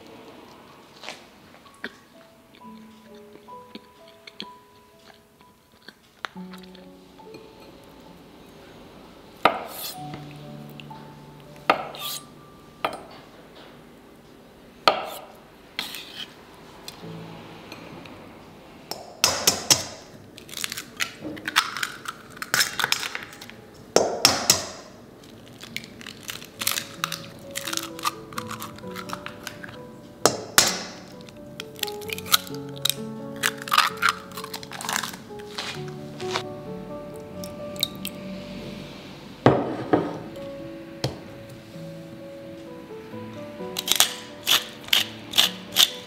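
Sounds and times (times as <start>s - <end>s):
soft background music: 0.0s - 24.8s, 25.7s - 46.0s
eggs cracking on metal bowl: 18.9s - 35.7s, 43.7s - 46.0s.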